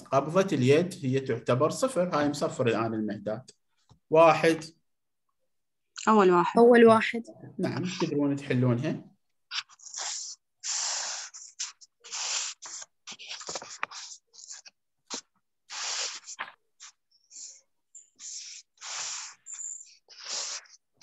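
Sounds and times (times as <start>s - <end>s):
scratchy rubbing noises: 9.5s - 20.9s.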